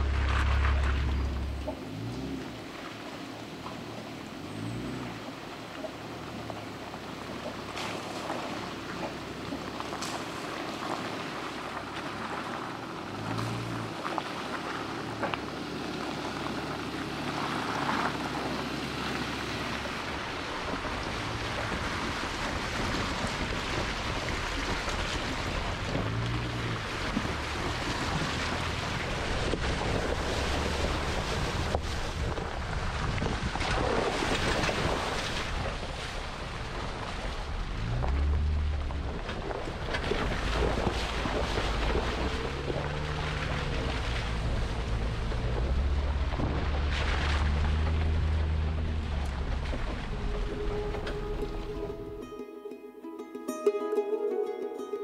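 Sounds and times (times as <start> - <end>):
tyres splashing through puddles: 0.0 - 52.2
engine rumble: 0.0 - 52.3
wind noise on microphone: 20.6 - 52.2.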